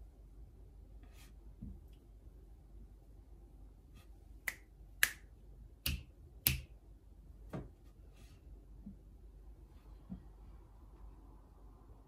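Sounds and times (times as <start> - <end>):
fingers snapping: 4.5 - 6.7.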